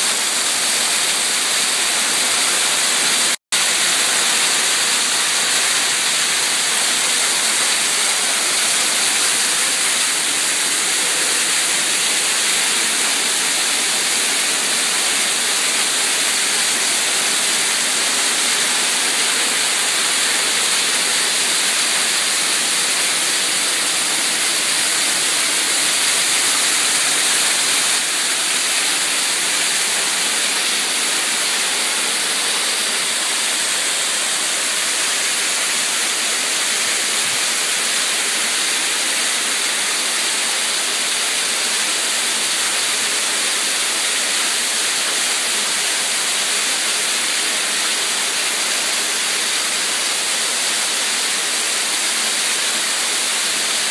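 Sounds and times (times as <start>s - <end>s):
waterfall splashing: 0.0s - 53.9s.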